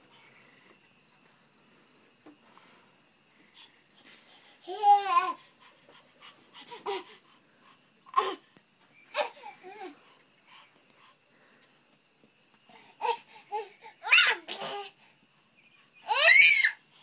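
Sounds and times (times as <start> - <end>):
baby babbling and laughing: 4.6 - 5.4
baby squealing: 14.0 - 14.5, 16.1 - 16.8.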